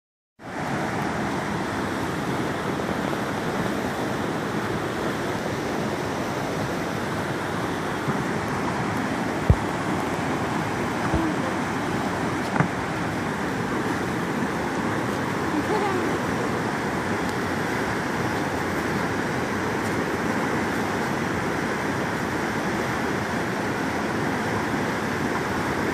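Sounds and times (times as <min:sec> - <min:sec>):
creek rushing through rapids: 0:00.4 - 0:25.9
low knocks: 0:09.4 - 0:09.8, 0:12.5 - 0:12.8.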